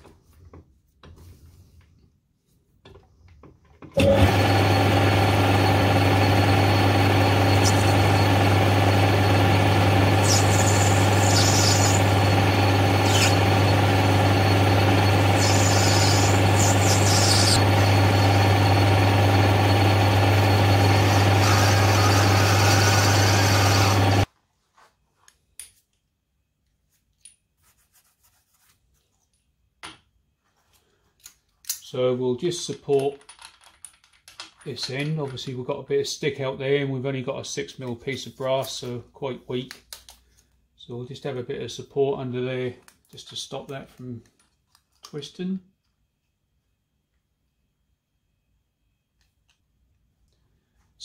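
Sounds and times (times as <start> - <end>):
metal lathe running: 4.0 - 24.3.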